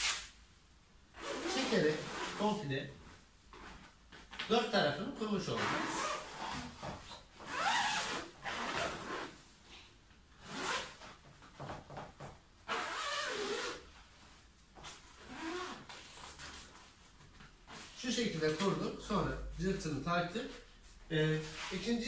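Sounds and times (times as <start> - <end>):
zipper being pulled: 1.2 - 2.5, 5.6 - 6.8, 7.4 - 9.4, 10.4 - 11.1, 12.6 - 13.9, 15.2 - 16.5
velcro tab fastening: 12.7 - 13.8.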